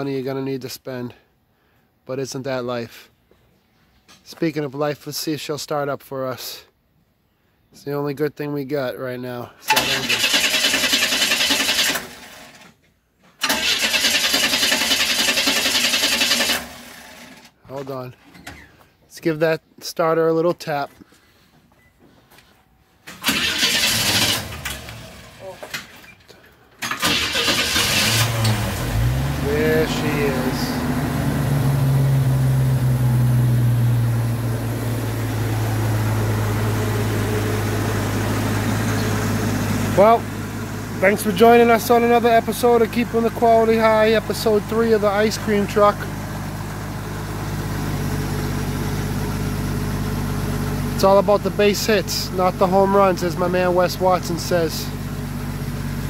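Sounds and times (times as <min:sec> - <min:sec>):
engine cranking without firing: 0:09.6 - 0:12.8, 0:13.4 - 0:17.6, 0:23.1 - 0:32.4
tapping starter: 0:09.7 - 0:12.8, 0:13.4 - 0:17.5, 0:23.1 - 0:26.1, 0:26.7 - 0:30.6
truck engine idling: 0:23.4 - 0:56.0.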